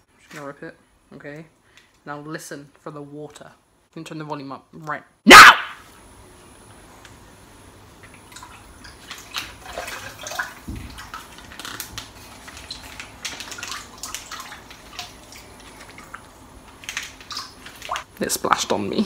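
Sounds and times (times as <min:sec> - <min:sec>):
water sloshing and dripping: 0:07.8 - 0:18.1.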